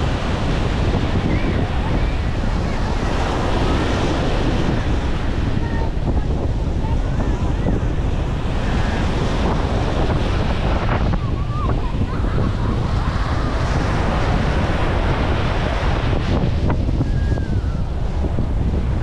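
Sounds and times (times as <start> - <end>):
surf breaking on shore: 0.0 - 19.0
wind buffeting microphone: 0.0 - 19.0.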